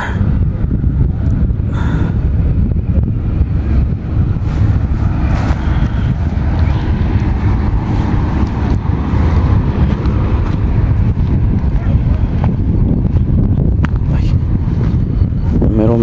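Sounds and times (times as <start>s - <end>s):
wind buffeting microphone: 0.0s - 16.0s
footsteps through grass: 4.4s - 10.7s.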